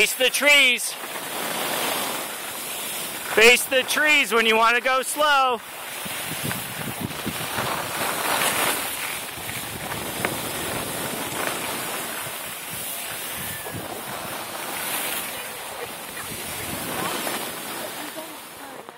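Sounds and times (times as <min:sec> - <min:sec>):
skis sliding over snow: 0:00.0 - 0:18.9
wind buffeting microphone: 0:05.7 - 0:18.6.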